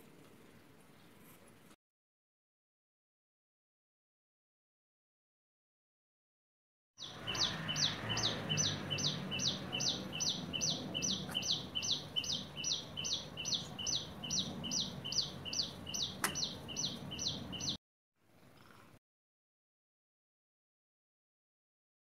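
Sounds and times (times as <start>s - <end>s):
bird calling repeatedly: 7.0s - 17.8s
sharp click: 16.2s - 16.5s.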